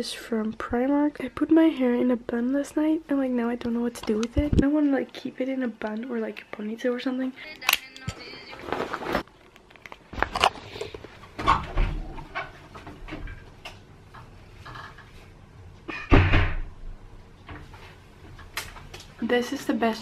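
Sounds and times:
cupboard doors opening and closing: 0:11.3 - 0:13.4, 0:15.9 - 0:16.7.

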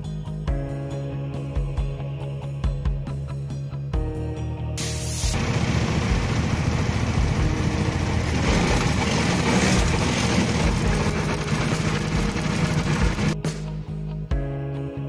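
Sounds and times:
scooter engine running: 0:04.8 - 0:13.4.

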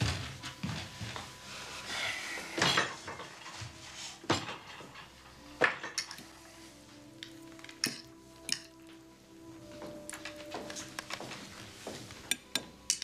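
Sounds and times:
tableware clinking: 0:04.3 - 0:06.4, 0:07.2 - 0:08.9, 0:09.7 - 0:13.0.

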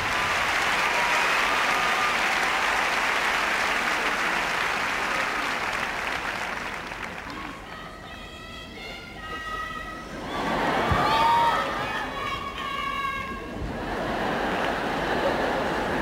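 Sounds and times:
large crowd applauding: 0:00.0 - 0:07.7, 0:14.3 - 0:16.0.

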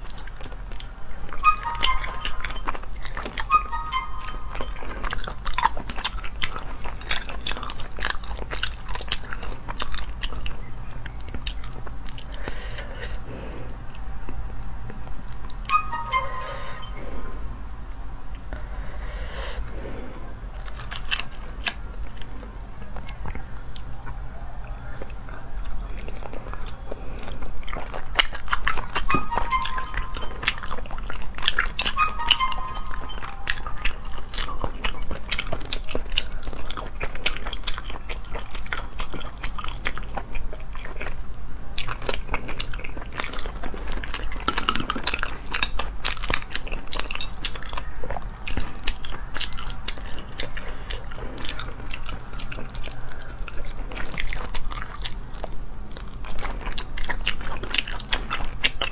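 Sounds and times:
wet chewing and lip smacking: 0:00.0 - 0:58.9.

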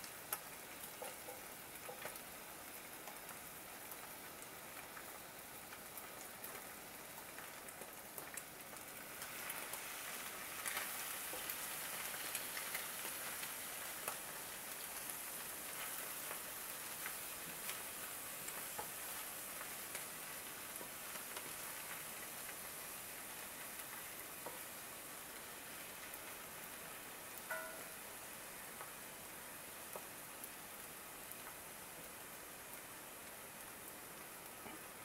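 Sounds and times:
food sizzling in a skillet: 0:00.0 - 0:35.0
wooden spatula scraping and tapping: 0:01.0 - 0:02.2.

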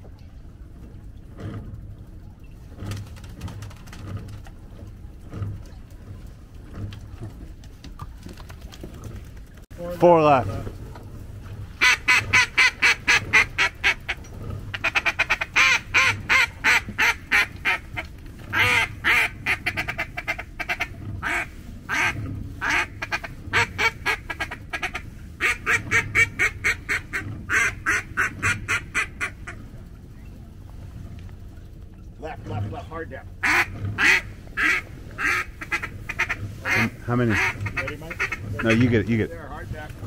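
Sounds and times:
duck call quacking: 0:11.8 - 0:29.6, 0:33.4 - 0:38.9.

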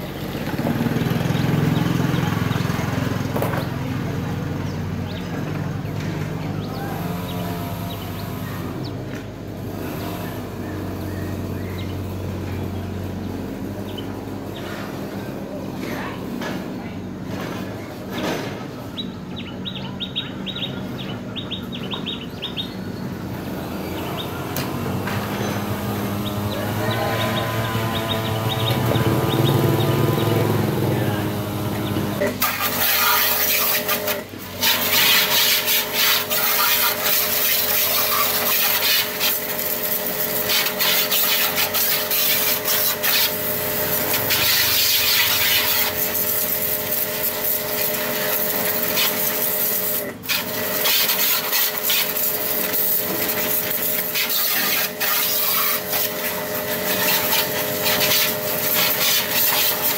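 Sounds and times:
power sander rasping: 0:23.6 - 0:59.9.

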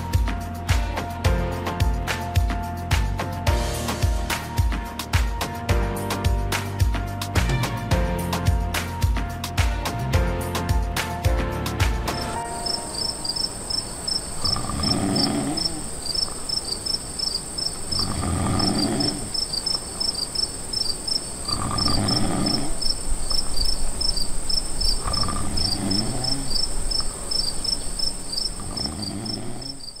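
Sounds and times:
crickets chirping: 0:12.2 - 0:30.0
man snoring: 0:14.3 - 0:16.1, 0:17.9 - 0:19.5, 0:21.4 - 0:23.2, 0:24.9 - 0:27.0, 0:28.5 - 0:30.0.

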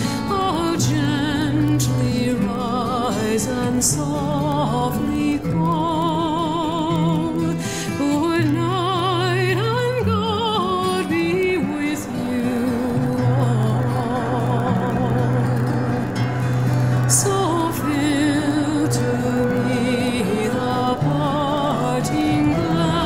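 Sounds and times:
held bass notes: 0:12.9 - 0:23.0.

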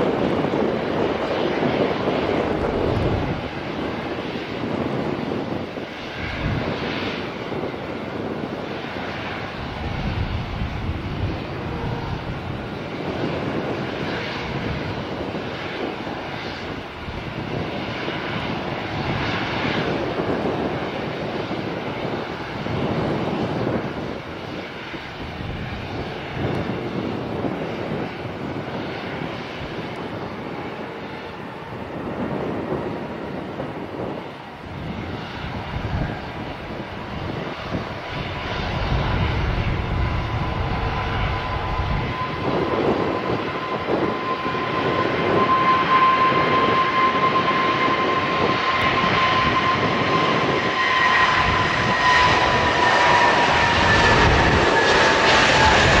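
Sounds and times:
jet engine rumble and hiss: 0:00.0 - 0:56.0
jet engine whine: 0:00.0 - 0:56.0.

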